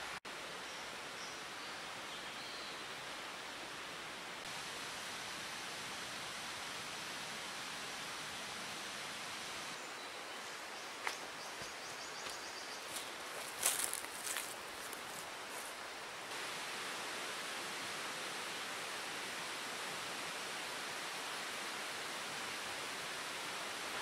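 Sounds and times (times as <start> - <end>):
outdoor rushing hiss: 2.9 - 9.9, 10.7 - 24.0.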